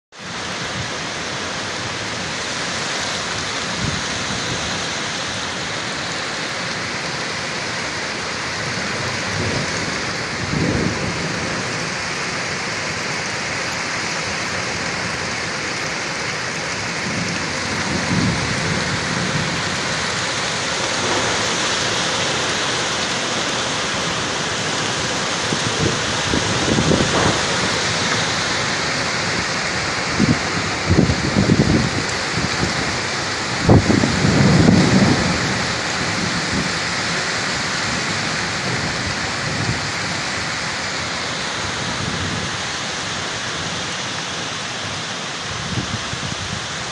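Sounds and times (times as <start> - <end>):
heavy rain pouring: 0.1 - 46.9
low rumbles: 17.3 - 32.6.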